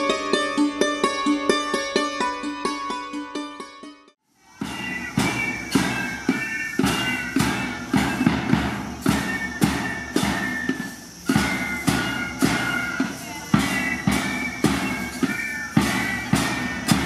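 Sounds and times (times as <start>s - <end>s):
high melody: 0.0s - 17.0s
drum strokes: 4.3s - 17.0s
marching band playing: 4.4s - 17.0s.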